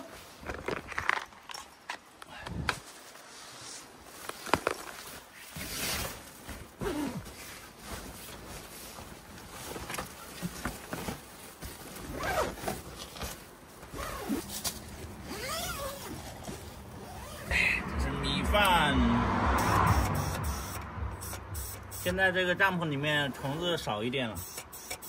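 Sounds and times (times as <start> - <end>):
tent zipper being drawn: 6.8 - 7.7, 12.1 - 12.7, 13.9 - 17.5.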